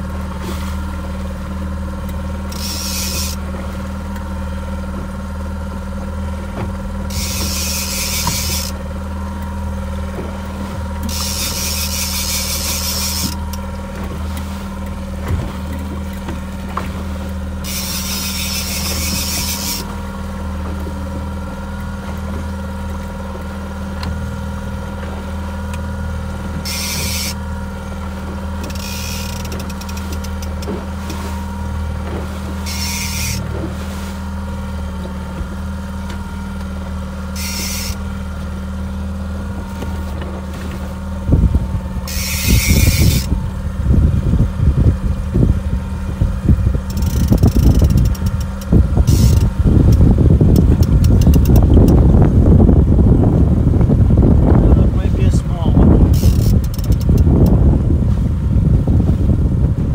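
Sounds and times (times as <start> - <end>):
outboard motor running: 0.0 - 59.9
fishing reel drag buzzing: 2.4 - 3.4, 7.0 - 8.8, 11.0 - 13.7, 17.6 - 19.9, 26.6 - 27.4, 28.6 - 30.7, 32.6 - 33.5, 37.3 - 38.1, 42.0 - 43.4, 46.8 - 52.0, 56.1 - 57.5.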